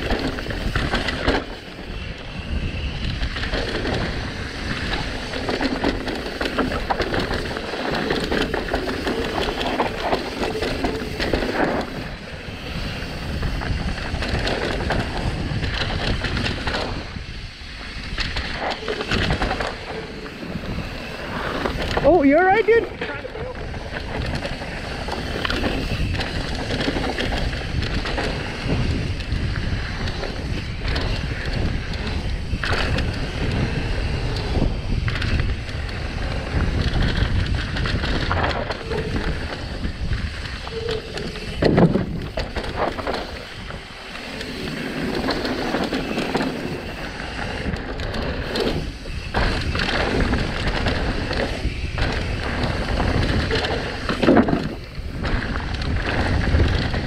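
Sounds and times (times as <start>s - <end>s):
bike rattling over bumps: 0.0s - 57.0s
wind rushing over microphone: 0.0s - 57.0s.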